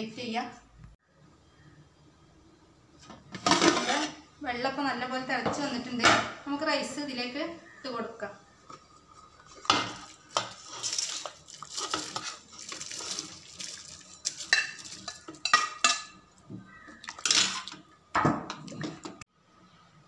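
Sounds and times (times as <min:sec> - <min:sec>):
metal spoon scraping pots: 0:03.3 - 0:04.3, 0:08.6 - 0:17.9.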